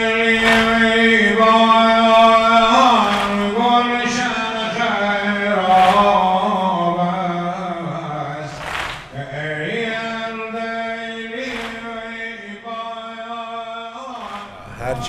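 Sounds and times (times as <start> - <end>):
man chanting: 0.0 - 15.0
crowd striking chests: 0.1 - 4.5, 5.6 - 6.6, 8.5 - 9.2, 14.1 - 15.0.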